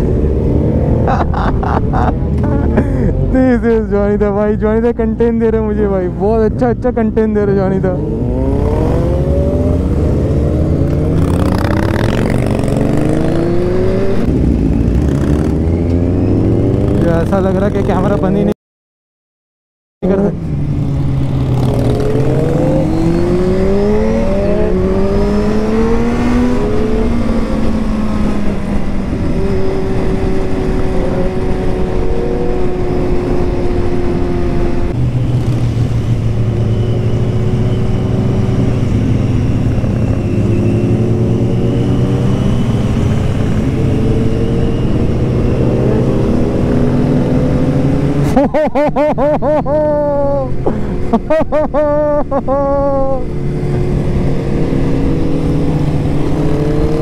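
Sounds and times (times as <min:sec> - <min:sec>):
motorcycle engine accelerating: 0:07.1 - 0:18.5, 0:20.1 - 0:57.0.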